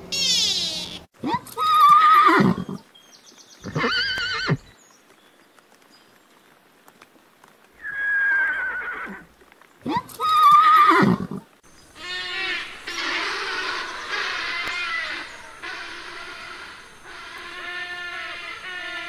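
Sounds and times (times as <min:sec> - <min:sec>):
horse whinnying: 0:01.6 - 0:02.8, 0:03.6 - 0:04.7, 0:07.8 - 0:09.2, 0:10.2 - 0:11.4.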